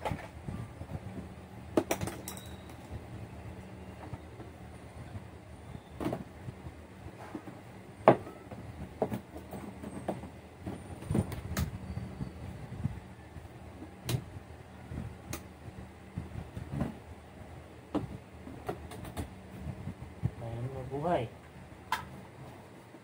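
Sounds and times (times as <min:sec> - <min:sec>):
hollow plastic knocks and clatter: 0:07.2 - 0:11.6, 0:17.9 - 0:19.3.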